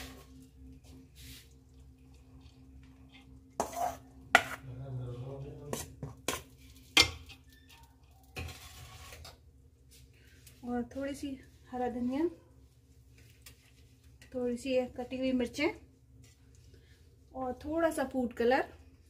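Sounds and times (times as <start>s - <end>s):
soft scraping: 8.4s - 10.7s.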